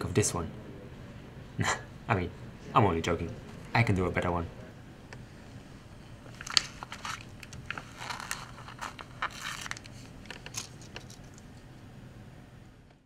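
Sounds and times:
paper sheet rustling and crinkling: 0:06.2 - 0:11.4.

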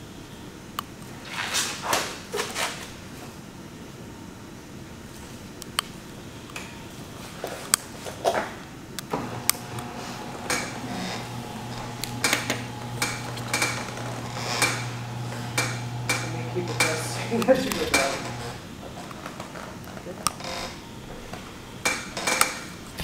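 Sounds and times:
steady low hum: 0:02.8 - 0:23.0.

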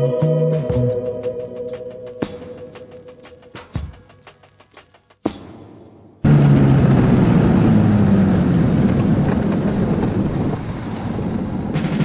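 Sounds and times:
music drum beats: 0:00.0 - 0:06.3
snow tug engine running: 0:06.3 - 0:12.0
wind buffeting microphone: 0:06.4 - 0:12.0.

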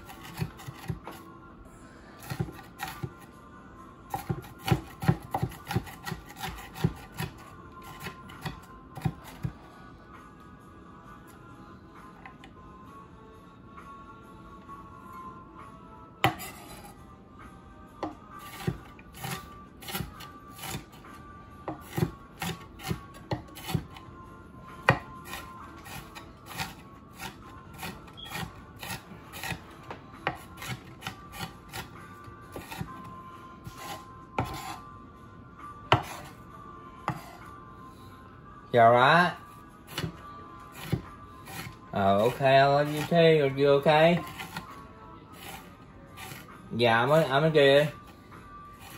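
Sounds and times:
knife scraping across board: 0:00.0 - 0:01.2, 0:04.1 - 0:09.5, 0:16.2 - 0:17.0, 0:18.0 - 0:21.1, 0:21.7 - 0:24.0, 0:24.8 - 0:33.0, 0:33.6 - 0:34.9, 0:35.9 - 0:36.4, 0:37.1 - 0:37.5, 0:39.9 - 0:43.2, 0:44.0 - 0:44.8, 0:45.4 - 0:47.5
knife chopping on wooden board: 0:04.1 - 0:09.5, 0:16.2 - 0:16.7, 0:18.0 - 0:20.8, 0:21.7 - 0:24.0, 0:24.9 - 0:31.9, 0:32.5 - 0:32.9, 0:33.7 - 0:34.8, 0:35.9 - 0:36.3, 0:39.9 - 0:40.2, 0:40.8 - 0:41.8, 0:44.2 - 0:44.7.

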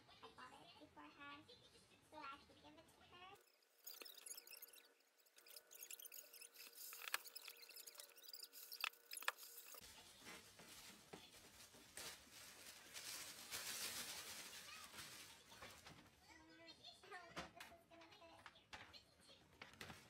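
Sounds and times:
plastic bag rustling: 0:03.4 - 0:16.1.

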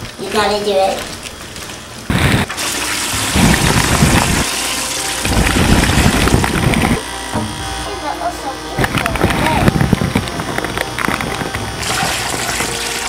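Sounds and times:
water bubbling and sloshing: 0:00.0 - 0:07.0, 0:09.8 - 0:13.0.

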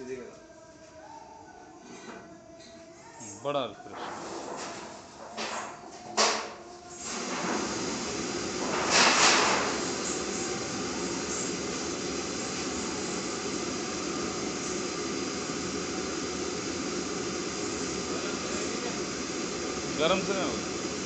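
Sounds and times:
gas burners rushing: 0:07.0 - 0:21.0.

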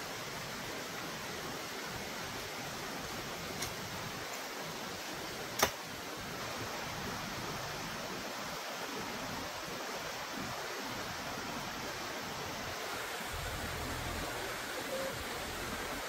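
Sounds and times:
sharp click: 0:05.6 - 0:05.8
steady rushing noise: 0:12.5 - 0:16.0.

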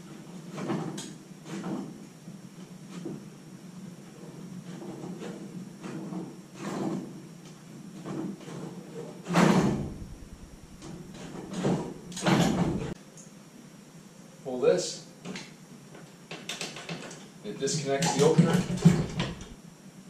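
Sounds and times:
low rumble: 0:09.7 - 0:13.0
metal knocks from garage door spring: 0:18.0 - 0:19.6.

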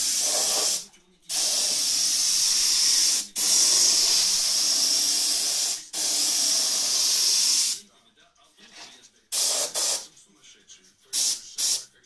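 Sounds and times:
spray gun hissing: 0:00.0 - 0:07.8, 0:09.4 - 0:10.0, 0:11.2 - 0:11.8.

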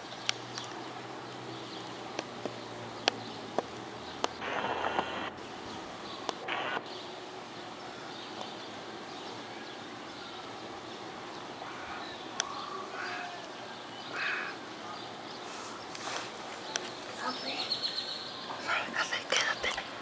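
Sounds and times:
outdoor background noise: 0:00.0 - 0:20.0
distant gunshots: 0:04.4 - 0:05.4.

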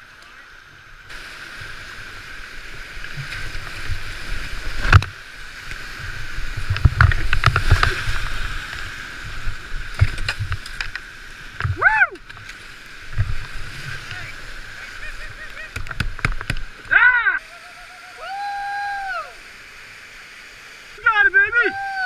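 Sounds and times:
whitewater rushing: 0:00.0 - 0:22.0
kayak thumps: 0:06.6 - 0:08.1, 0:09.8 - 0:14.3, 0:15.1 - 0:17.1.

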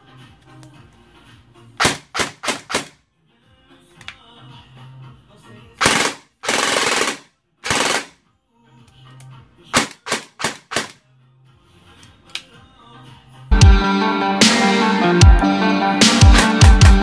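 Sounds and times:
electric airsoft gun firing: 0:01.8 - 0:03.0, 0:05.8 - 0:08.1, 0:09.8 - 0:11.0.

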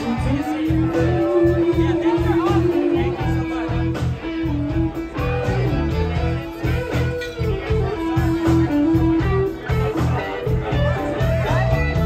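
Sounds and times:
electric guitar: 0:00.0 - 0:12.0
live band playing: 0:00.0 - 0:12.0.

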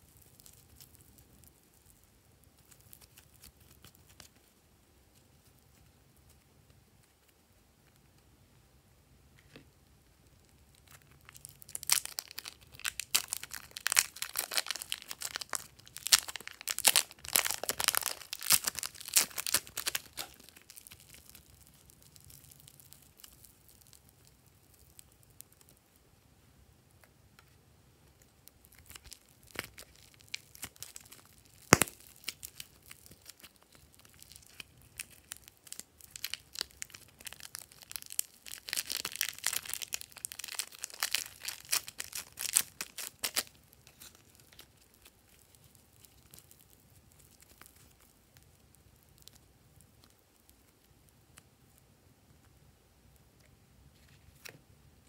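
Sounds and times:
plastic wrapper crinkling and tearing: 0:00.0 - 0:04.5, 0:10.7 - 0:25.8, 0:28.2 - 0:51.8.

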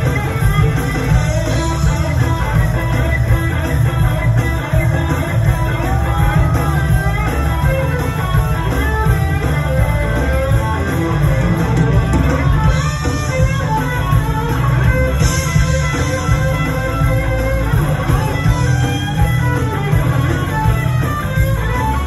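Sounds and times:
lead electric guitar with bends: 0:00.0 - 0:22.0
live blues band: 0:00.0 - 0:22.0.

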